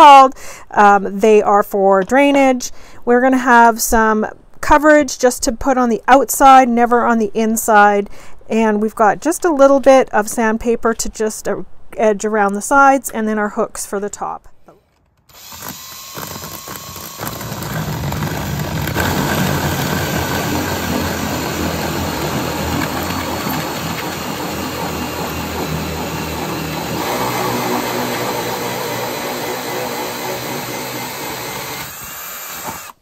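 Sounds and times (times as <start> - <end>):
power drill hole saw cutting gourd: 15.3 - 33.0.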